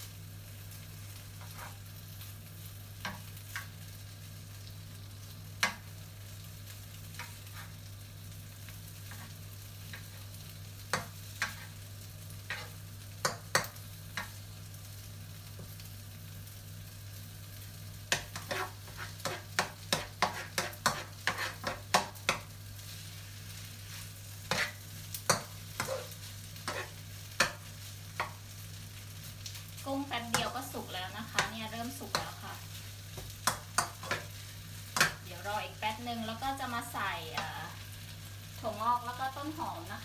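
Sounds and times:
food frying in a wok: 0.0 - 40.0
spatula scraping a pan: 1.3 - 1.9, 7.2 - 7.9, 9.0 - 11.8, 12.4 - 14.4, 18.1 - 23.2, 23.8 - 28.4, 31.3 - 35.2.

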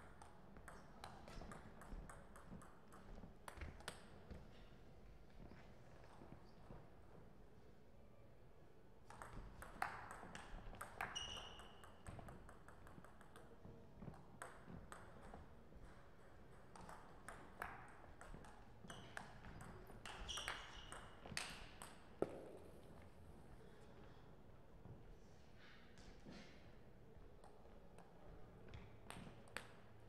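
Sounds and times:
table tennis ball hits: 9.1 - 13.5
ball bouncing on table: 9.1 - 16.0.

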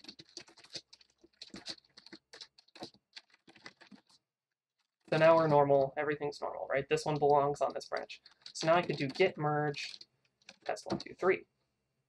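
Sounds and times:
keyboard typing: 0.0 - 4.2, 5.1 - 5.9, 6.9 - 11.3.

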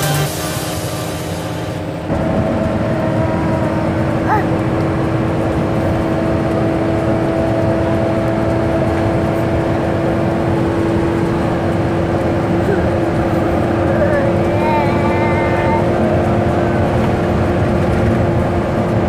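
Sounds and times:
vehicle engine drone: 0.0 - 19.0.

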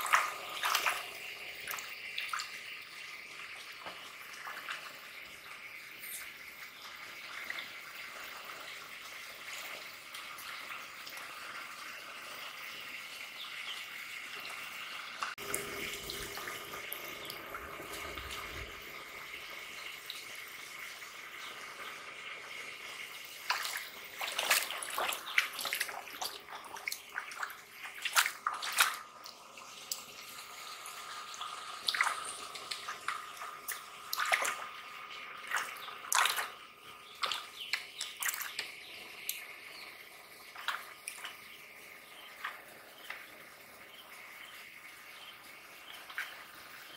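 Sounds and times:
muddy water splashing: 0.0 - 2.7, 23.4 - 29.3, 31.8 - 39.4.

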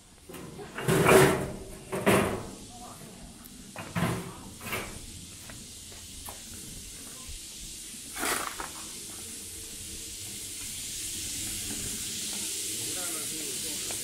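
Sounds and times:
steady high hiss: 0.0 - 14.0
loud scrape: 8.1 - 8.8.

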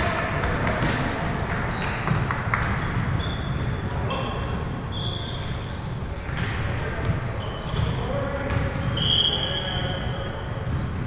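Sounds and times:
sneakers squeaking on floor: 0.8 - 11.0
basketball bouncing: 2.0 - 3.2.

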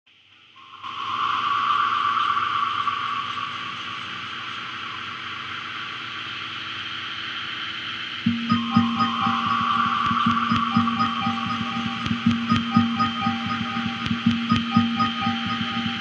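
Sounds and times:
low plucked note: 8.3 - 16.0.

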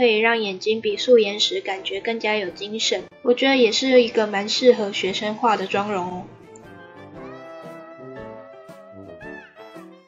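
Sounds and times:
woman speaking: 0.0 - 6.3
quiet instrumental music: 0.0 - 10.0.

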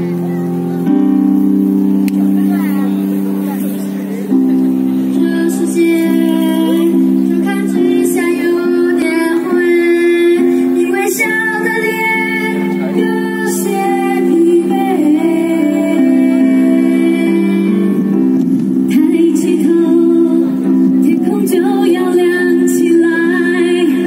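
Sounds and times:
youth choir singing: 5.2 - 17.8
boy and girl soloists singing: 5.2 - 18.0.

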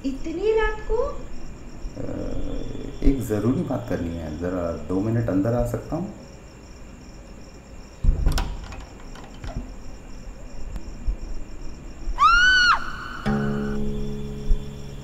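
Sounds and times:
crickets chirping: 0.0 - 15.0
heavy thud: 8.0 - 8.6
high rising and falling call: 12.2 - 14.0.

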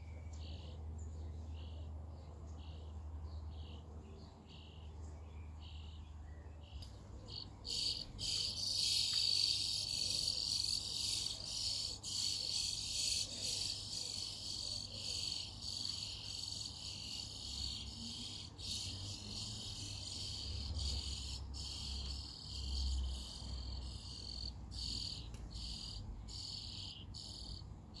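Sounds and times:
nestlings begging calls: 7.3 - 28.0.

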